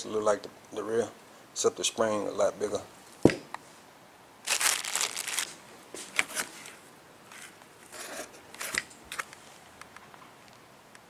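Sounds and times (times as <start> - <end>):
plastic packaging crinkling: 4.4 - 6.7.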